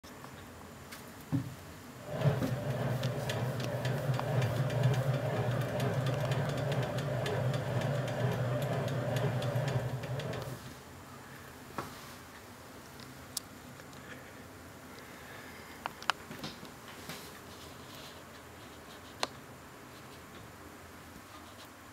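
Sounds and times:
sewing machine rapid ticking: 2.0 - 10.6
sewing machine motor hum: 2.0 - 10.7.

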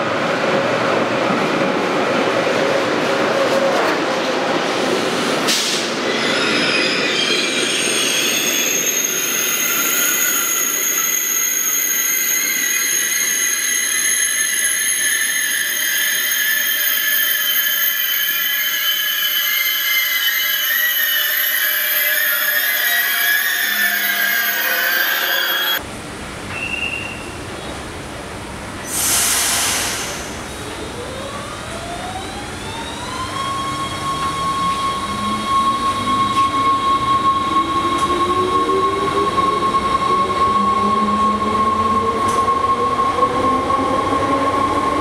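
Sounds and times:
train wheels squealing: 5.6 - 25.8, 26.5 - 27.7, 32.6 - 45.0.

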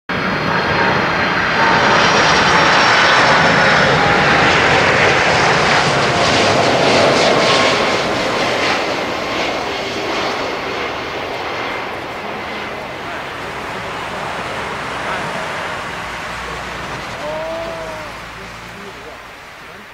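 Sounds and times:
jet airliner passing overhead: 0.1 - 19.9.

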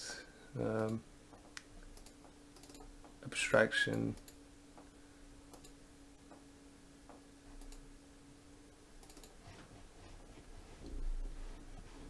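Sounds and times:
faint steady hum: 0.0 - 12.0
mouse and keyboard clicks: 9.0 - 9.4.

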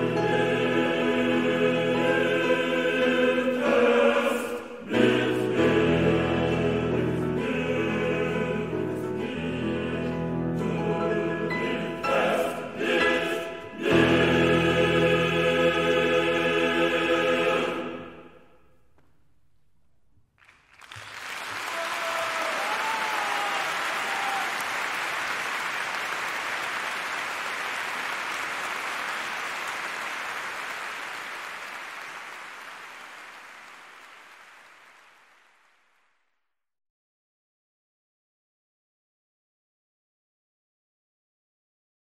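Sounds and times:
male chorus with piano: 0.0 - 18.4
audience applause: 20.4 - 36.0.

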